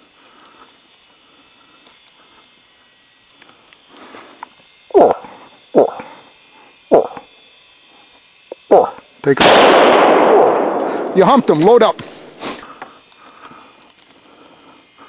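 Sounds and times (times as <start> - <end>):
moose grunting: 4.9 - 6.2, 6.9 - 7.2, 8.6 - 9.0.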